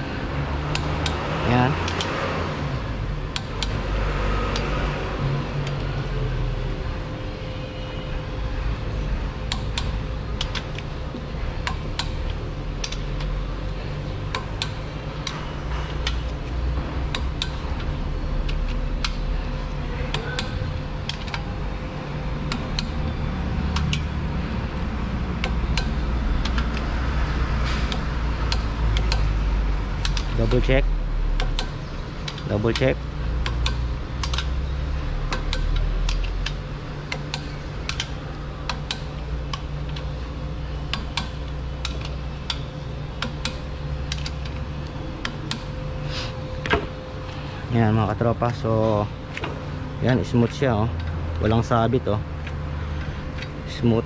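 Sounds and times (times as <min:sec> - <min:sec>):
steady low hum: 0:00.0 - 0:54.0
metallic clicks of torque wrench: 0:01.8 - 0:02.2, 0:09.5 - 0:10.9, 0:11.6 - 0:13.4, 0:14.3 - 0:16.4, 0:23.7 - 0:24.1, 0:25.4 - 0:26.9, 0:27.9 - 0:29.4, 0:30.0 - 0:30.8, 0:31.4 - 0:40.1, 0:40.9 - 0:44.6.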